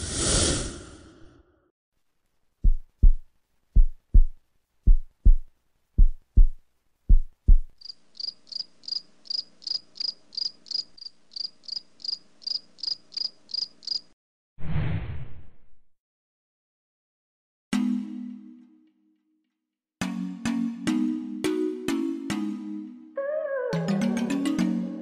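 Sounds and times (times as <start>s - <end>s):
deep double thumps: 2.6s - 7.7s
crickets chirping: 7.8s - 14.2s.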